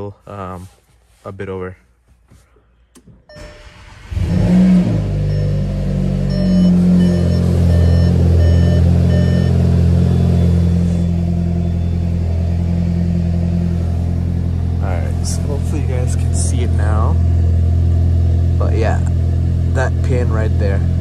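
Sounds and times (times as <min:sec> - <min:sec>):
car engine starting and idling: 0:02.9 - 0:21.0
dashboard warning chime beeping: 0:03.3 - 0:03.7, 0:05.2 - 0:14.1.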